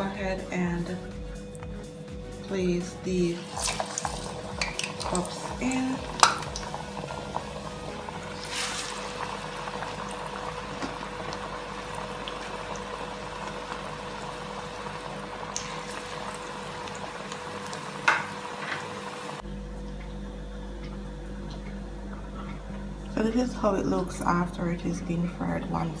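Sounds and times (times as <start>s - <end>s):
bubbling sizzle of deep-frying: 3.0s - 19.4s.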